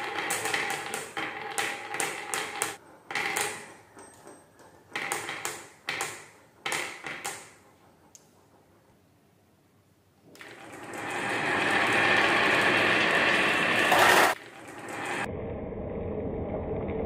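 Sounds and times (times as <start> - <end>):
glass marbles rolling on wood: 0.0 - 5.7, 10.4 - 15.3.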